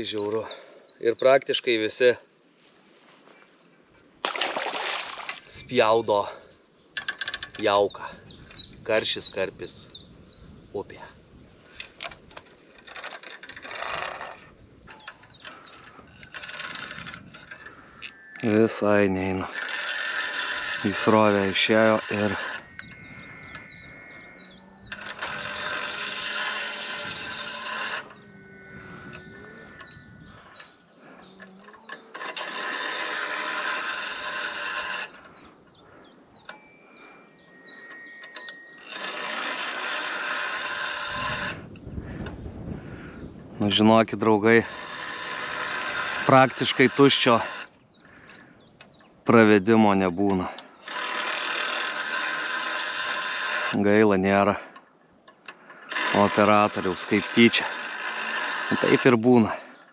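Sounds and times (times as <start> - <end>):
birds chirping: 0.0 - 59.9
fishing reel whirring: 12.8 - 14.5, 15.1 - 30.8, 31.4 - 35.4, 36.5 - 42.4, 44.5 - 47.7, 50.8 - 53.8, 55.6 - 59.2.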